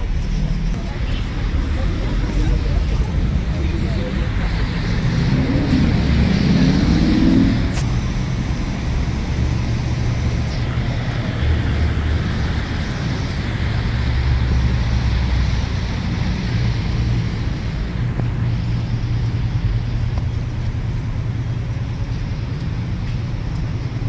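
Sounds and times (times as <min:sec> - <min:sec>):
street traffic rumble: 0:00.0 - 0:24.0.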